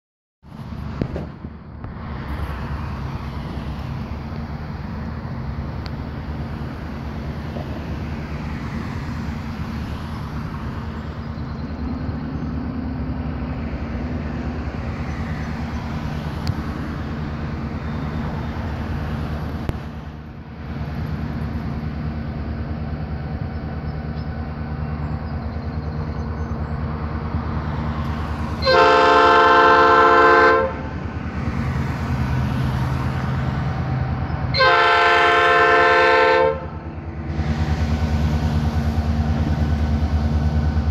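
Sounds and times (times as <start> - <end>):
diesel locomotive engine drone: 0.4 - 40.9
locomotive air horn blasts: 28.6 - 30.9, 34.5 - 37.8.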